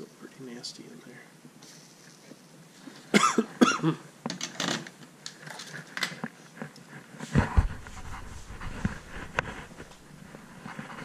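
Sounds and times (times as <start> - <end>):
rubbing rumble on microphone: 6.5 - 11.0.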